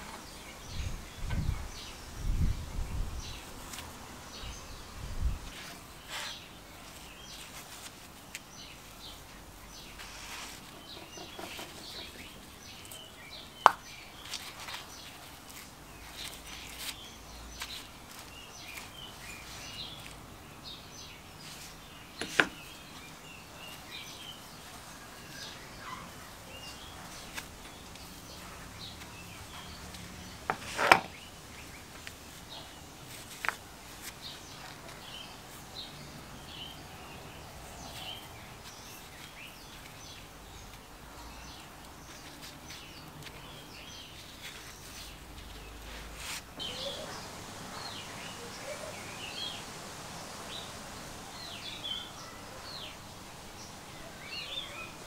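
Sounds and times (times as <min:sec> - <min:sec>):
rubbing and knocking of metal parts: 0:10.0 - 0:12.3
faint bird chirps: 0:46.6 - 0:55.0.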